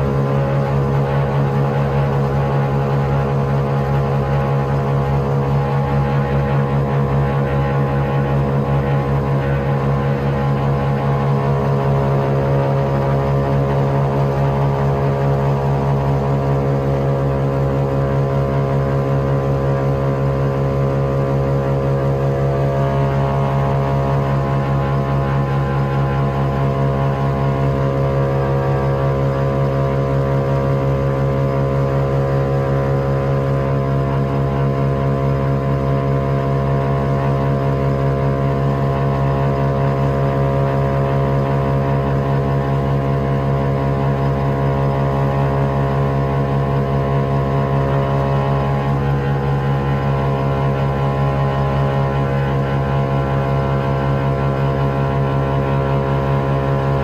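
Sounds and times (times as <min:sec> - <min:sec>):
aircraft engines droning: 0:00.0 - 0:57.0.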